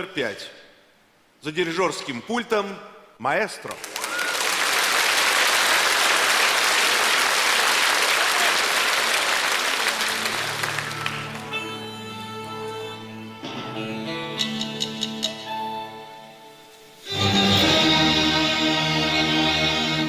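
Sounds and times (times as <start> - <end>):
audience applauding: 3.7 - 11.7
music with long held notes: 9.9 - 20.0.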